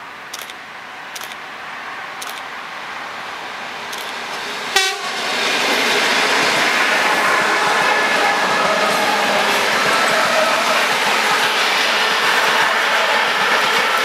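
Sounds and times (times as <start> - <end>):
approaching train noise: 0.0 - 14.0
train horn toot: 4.7 - 5.2.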